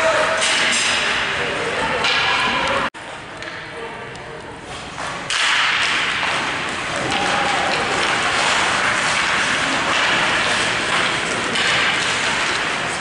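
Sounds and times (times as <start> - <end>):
crowd cheering and clapping: 6.9 - 8.5.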